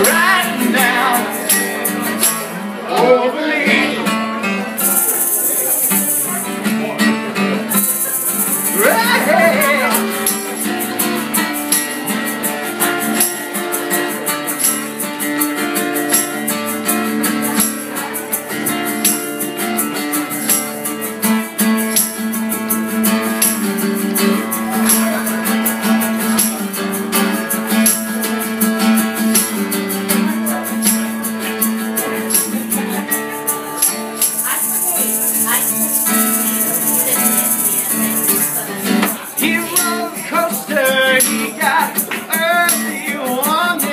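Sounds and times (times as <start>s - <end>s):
acoustic guitar strumming: 0.0s - 43.9s
shaker ticks: 4.8s - 6.6s, 7.8s - 43.9s.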